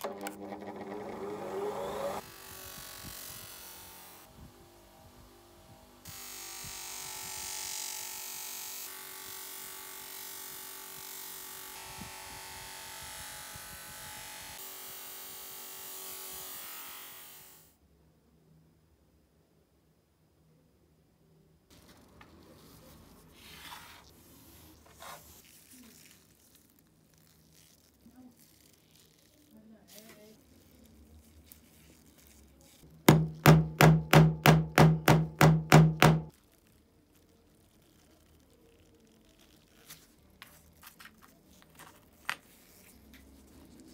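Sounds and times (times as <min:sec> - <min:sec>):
metal grinding on bench grinder: 0:00.0 - 0:02.2.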